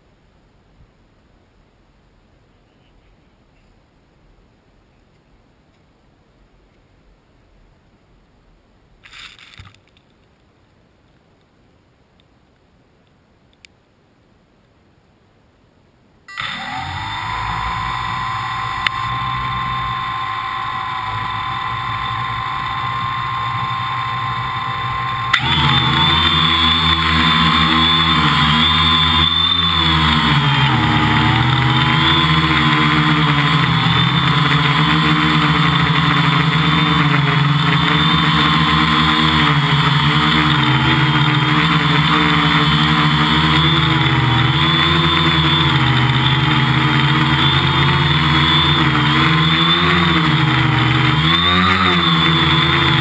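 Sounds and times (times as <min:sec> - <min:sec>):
drone motors whining: 0:16.3 - 0:53.0.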